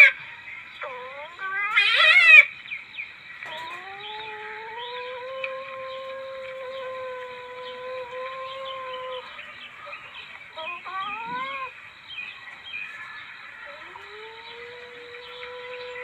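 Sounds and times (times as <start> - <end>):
mewing civet calls: 10.6 - 11.7.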